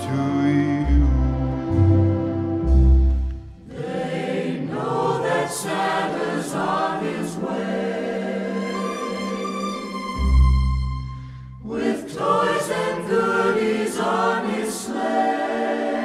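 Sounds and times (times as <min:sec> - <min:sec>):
orchestral music: 0:00.0 - 0:04.2, 0:07.6 - 0:12.5
choir singing: 0:00.0 - 0:11.0, 0:11.6 - 0:16.0.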